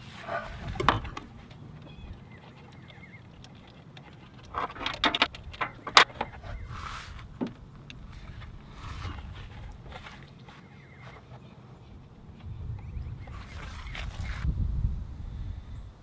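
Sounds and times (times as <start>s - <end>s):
soft rustles: 0.0s - 12.6s.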